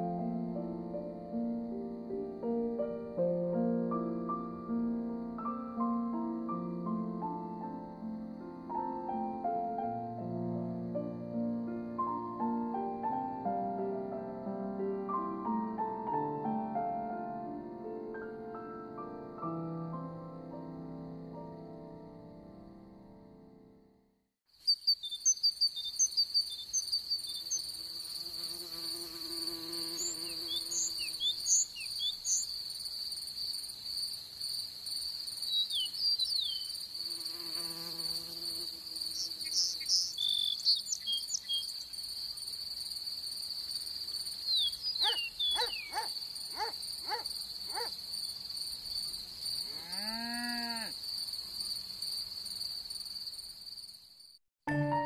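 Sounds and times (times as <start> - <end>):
short high insect chirps: 24.5 - 49.8
cricket trill: 24.5 - 54.4
flies buzzing: 27.3 - 32.4, 36.5 - 41.4, 45.0 - 48.5.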